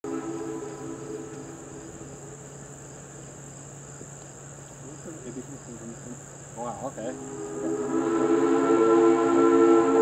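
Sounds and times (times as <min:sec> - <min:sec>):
faint held tone: 0:00.0 - 0:02.4
crickets chirring: 0:00.0 - 0:10.0.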